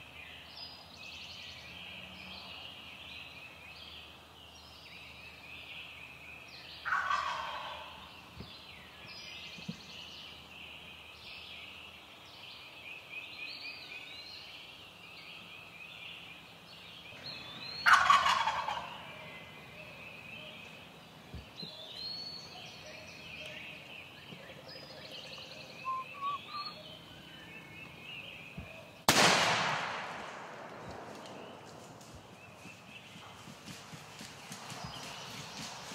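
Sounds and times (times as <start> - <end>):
songbirds chorus: 0.0 - 29.3, 30.7 - 35.9
turkey gobbling: 6.8 - 8.0, 17.8 - 19.1, 25.7 - 26.8
soft bird calls: 15.2 - 29.1
loud gunshot with echo: 29.1 - 30.8.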